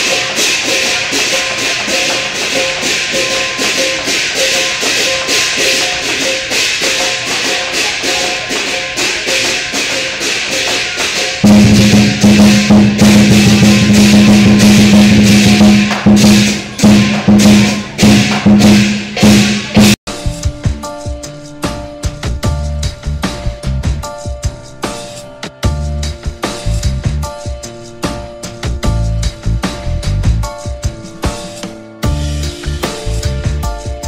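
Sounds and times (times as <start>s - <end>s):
metal cymbals clashing: 0.0s - 20.3s
deep booming drum: 11.4s - 20.8s, 25.6s - 27.3s, 28.6s - 31.0s.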